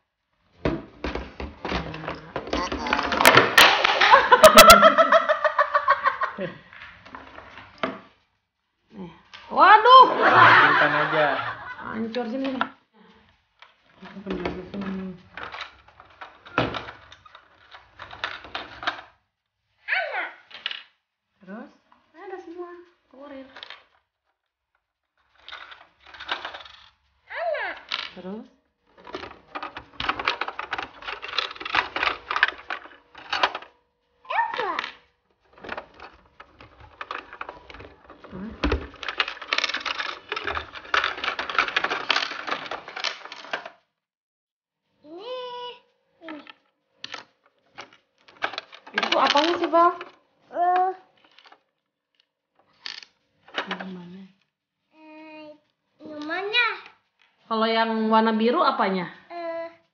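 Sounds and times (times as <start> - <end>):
plastic clicks and clatters: 0.6 - 6.2, 13.5 - 19.2, 23.4 - 27.0, 28.8 - 33.8, 34.4 - 43.8, 46.2 - 54.0
person speaking: 1.8 - 3.3, 9.5 - 12.6.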